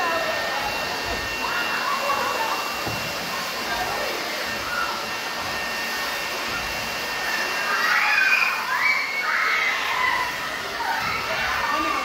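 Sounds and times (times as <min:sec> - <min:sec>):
children's voices: 0:00.0 - 0:05.0, 0:07.5 - 0:12.0
leaf blower running: 0:00.0 - 0:12.0.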